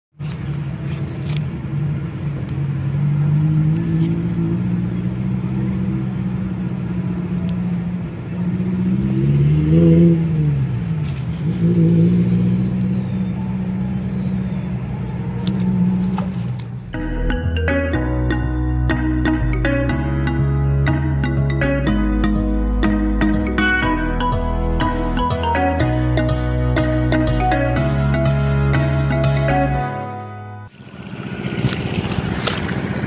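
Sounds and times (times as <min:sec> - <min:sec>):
engine running with low hum: 0:00.2 - 0:30.0, 0:30.6 - 0:33.0.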